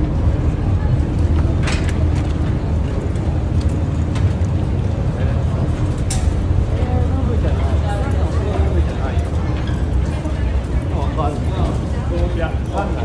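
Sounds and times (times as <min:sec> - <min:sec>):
ferry engines rumbling: 0:00.0 - 0:13.0.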